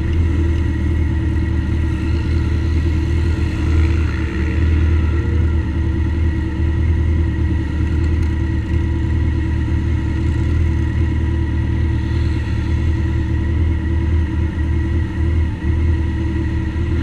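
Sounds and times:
motorcycle engine idling: 0:00.0 - 0:17.0
motorcycles riding past: 0:01.4 - 0:06.3.

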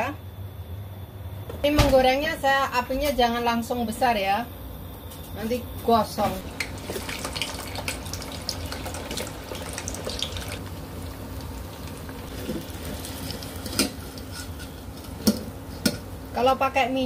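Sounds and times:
food deep-frying in oil: 0:06.2 - 0:16.4.

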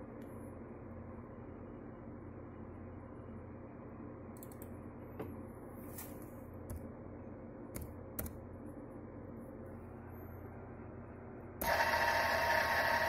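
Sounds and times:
computer keyboard clicks: 0:04.4 - 0:04.7.

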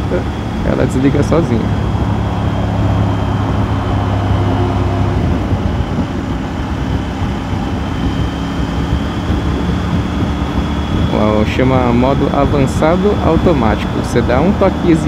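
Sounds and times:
motorcycle engine running: 0:00.0 - 0:15.0
wind and road noise: 0:00.0 - 0:15.0.

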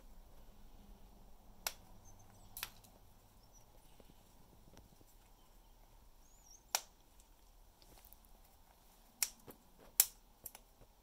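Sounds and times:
parrot beak cracking wood: 0:06.7 - 0:08.3.

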